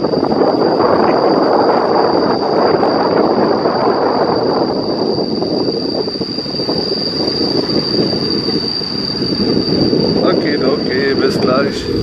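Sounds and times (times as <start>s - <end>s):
thin high whine: 6.6s - 12.0s.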